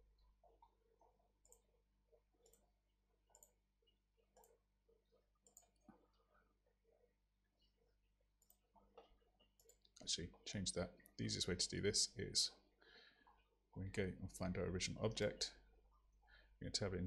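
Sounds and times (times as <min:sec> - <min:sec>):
computer mouse clicks: 0:01.4 - 0:01.7, 0:02.4 - 0:02.7, 0:03.3 - 0:03.6, 0:04.3 - 0:04.6, 0:05.4 - 0:06.0, 0:08.4 - 0:10.0.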